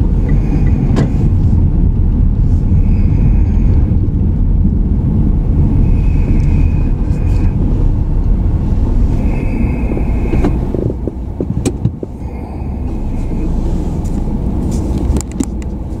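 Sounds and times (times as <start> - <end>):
car engine and tyre rumble: 0.0 - 16.0
sharp clicks and knocks: 0.2 - 1.3, 10.3 - 12.2, 14.1 - 15.8.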